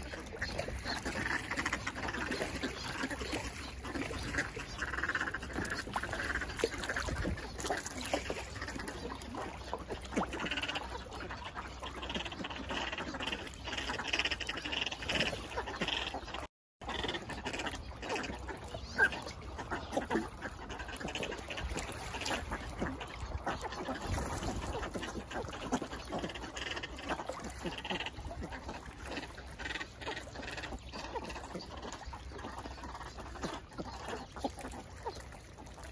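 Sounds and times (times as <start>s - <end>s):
ducks calling: 0.0s - 35.9s.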